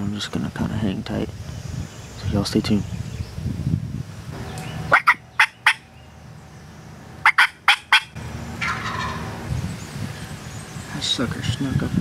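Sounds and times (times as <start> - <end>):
turkey gobbling: 4.8 - 5.9, 7.2 - 9.4.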